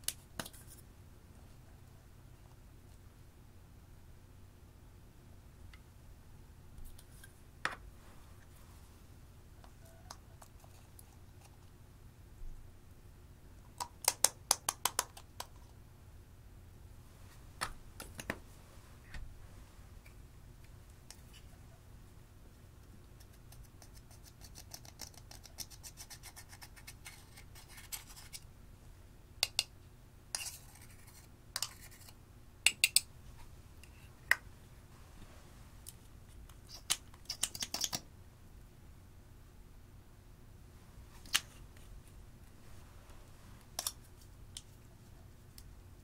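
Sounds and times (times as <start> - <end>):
plastic tubes and caps clicking: 35.9 - 38.0.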